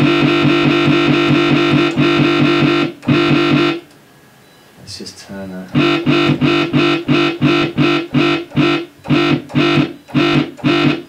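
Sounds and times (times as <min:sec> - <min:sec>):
dubstep wobble bass: 0:05.8 - 0:11.0.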